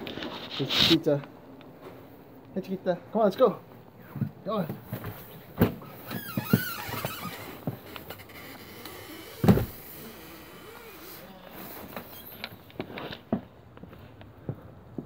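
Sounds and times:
footsteps: 1.6 - 2.2
door opening and shutting: 5.6 - 12.6
loud door thud: 9.4 - 9.8.

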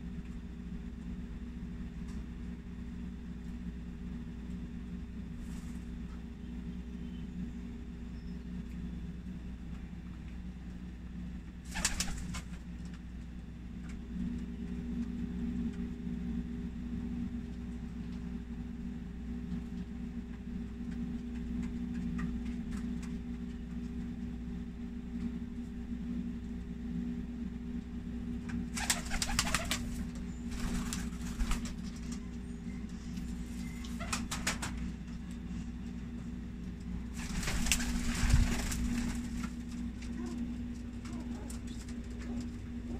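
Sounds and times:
wing flapping: 11.6 - 12.7, 28.7 - 32.2, 33.2 - 34.8, 37.1 - 42.6
pigeons cooing: 28.8 - 30.2.

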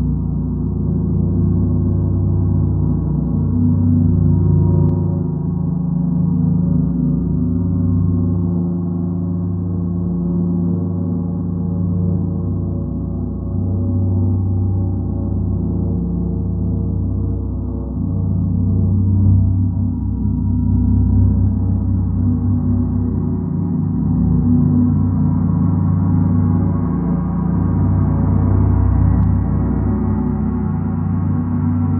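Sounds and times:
gong ringing drone: 0.0 - 31.9.

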